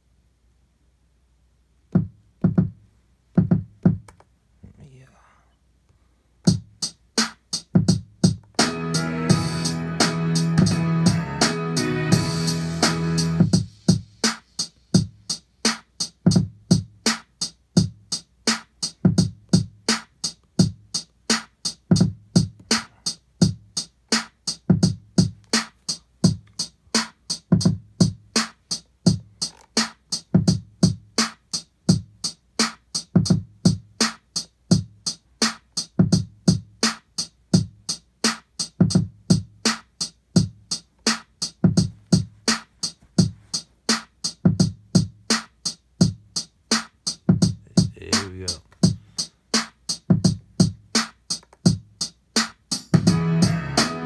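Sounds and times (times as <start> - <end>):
kick drum thumps: 1.9 - 4.1, 6.5 - 6.8, 7.8 - 8.5, 27.5 - 28.2, 30.4 - 31.1, 41.6 - 43.4, 44.5 - 45.2, 47.3 - 49.0, 50.1 - 50.8.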